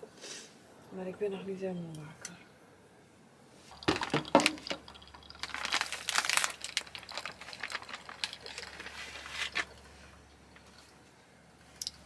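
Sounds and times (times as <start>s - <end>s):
packaging crinkling: 3.7s - 9.9s.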